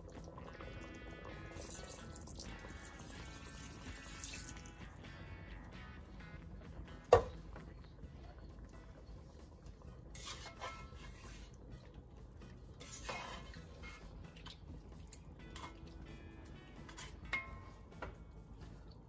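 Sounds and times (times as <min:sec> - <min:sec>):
spatula scraping in a pot: 0:09.8 - 0:17.8.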